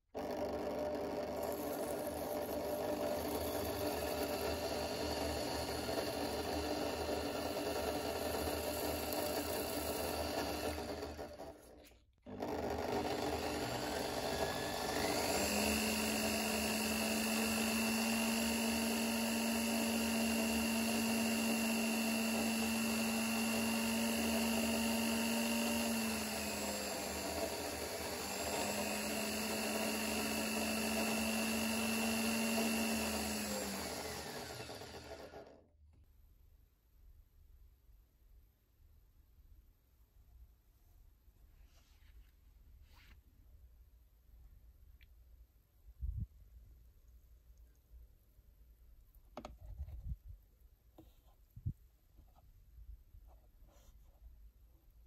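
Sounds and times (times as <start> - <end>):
electric drill running: 0.1 - 35.6.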